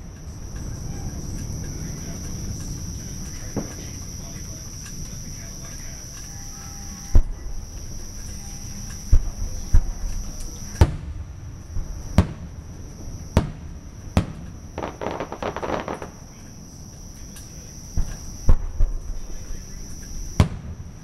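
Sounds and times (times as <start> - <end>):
fireworks booming: 0.0 - 21.0
fireworks crackling: 0.0 - 21.0.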